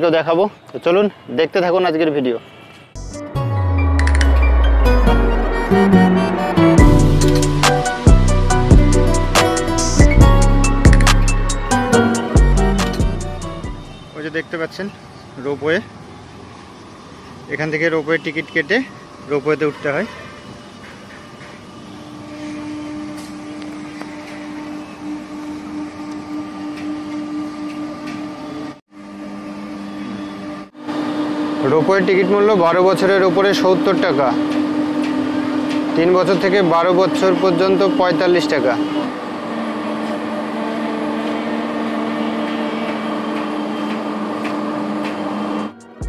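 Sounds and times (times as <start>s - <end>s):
steady machine hum: 3.0s - 14.0s
ropeway drive machinery humming: 3.0s - 14.2s, 21.5s - 46.0s
outdoor background noise: 14.0s - 31.5s.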